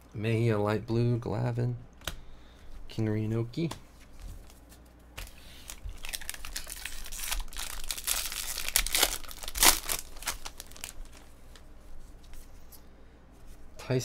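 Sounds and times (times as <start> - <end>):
foil wrapper crinkling and tearing: 5.2 - 11.3.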